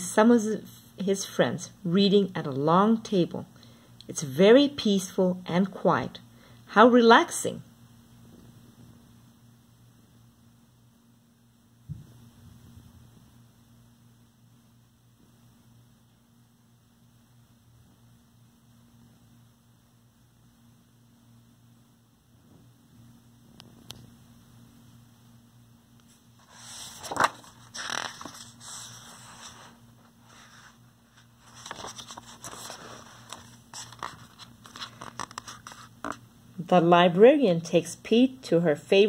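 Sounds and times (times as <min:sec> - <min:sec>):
faint low hum: 0:00.0 - 0:39.0
paper pages rustling: 0:26.1 - 0:36.2
page flapping: 0:26.4 - 0:36.2.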